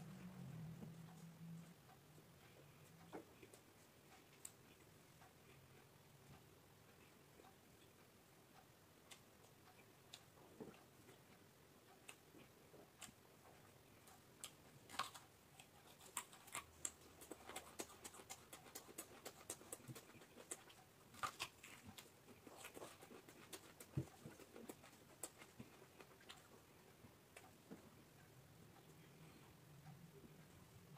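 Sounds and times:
chewing crunchy vegetables: 14.4s - 26.7s.

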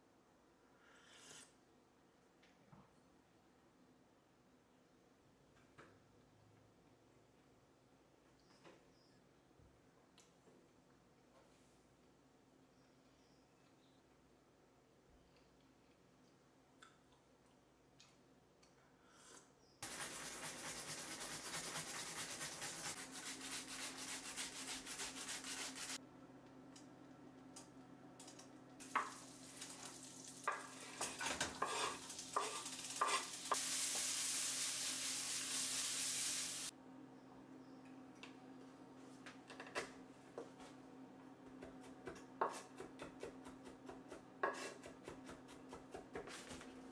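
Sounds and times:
food sizzling in a frying pan: 28.8s - 36.7s
utensil scraping a pan: 31.0s - 33.4s.

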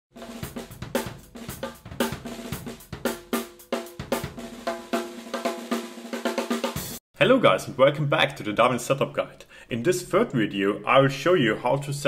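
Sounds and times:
drum kit playing a groove: 0.1s - 7.0s.

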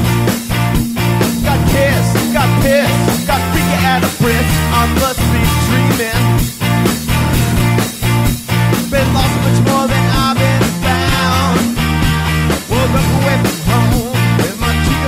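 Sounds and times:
rock song: 0.0s - 15.0s.

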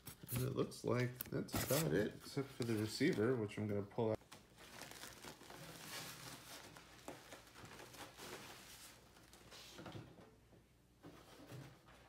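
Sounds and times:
plastic bag rustling: 4.2s - 9.7s.

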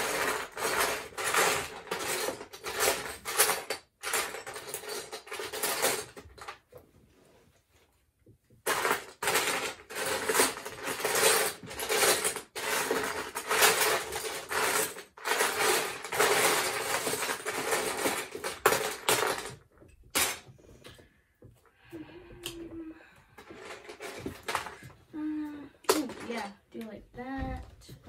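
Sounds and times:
plastic bricks rattling in tub: 0.0s - 6.7s, 8.6s - 21.0s, 23.3s - 25.1s, 25.8s - 26.6s.

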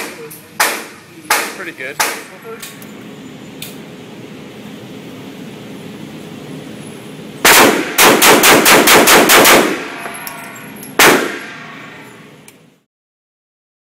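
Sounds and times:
handgun shots echoing indoors: 7.5s - 11.9s.

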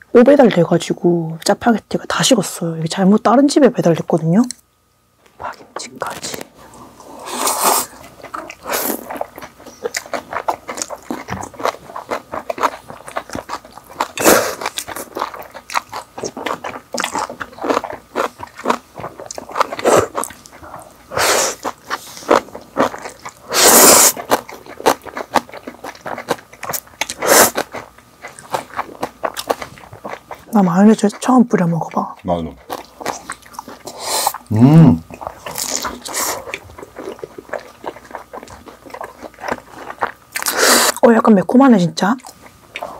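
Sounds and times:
wet chewing and crunching: 7.8s - 41.2s, 42.2s - 42.9s.

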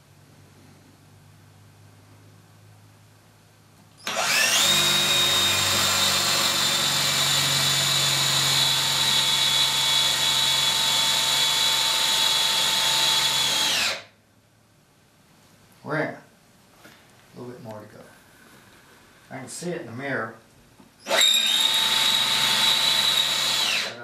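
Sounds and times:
cordless drill boring into wood: 4.0s - 14.1s, 21.0s - 24.0s.

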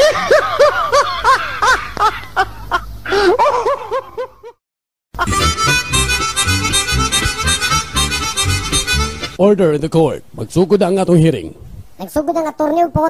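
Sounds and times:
person laughing: 0.0s - 4.6s, 5.2s - 8.0s
harmonica music: 5.2s - 9.4s.

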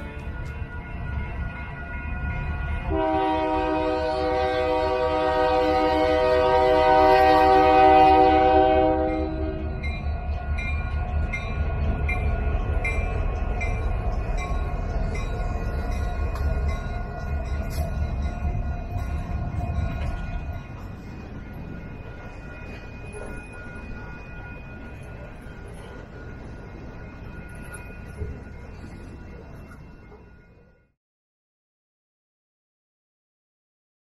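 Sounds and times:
train rumbling: 0.0s - 30.9s
locomotive air horn blast: 2.9s - 9.6s.

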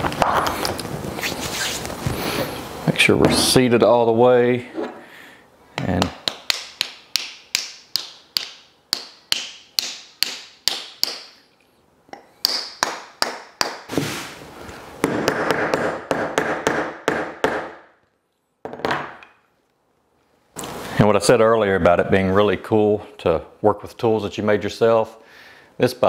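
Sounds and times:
hammer tapping wooden wedges: 5.8s - 11.4s.

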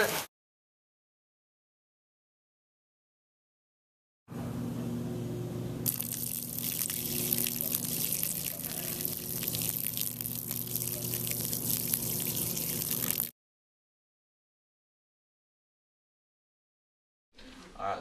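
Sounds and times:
steady low hum: 4.3s - 13.3s
water splashing onto pavement: 5.9s - 13.3s.

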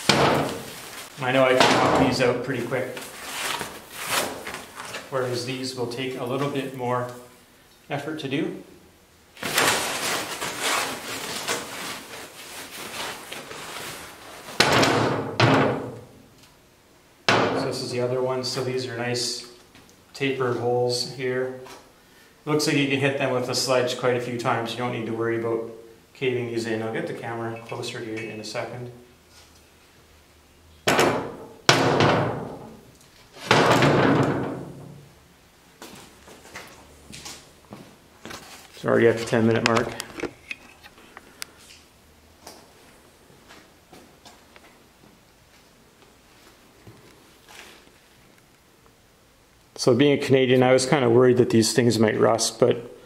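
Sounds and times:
plastic sheet rustling: 0.0s - 5.4s, 9.4s - 14.6s, 38.2s - 40.2s.

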